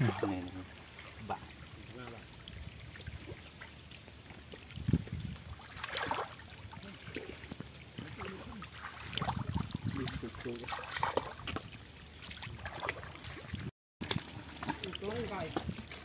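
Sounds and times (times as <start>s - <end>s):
muddy water splashing: 0.0s - 16.0s.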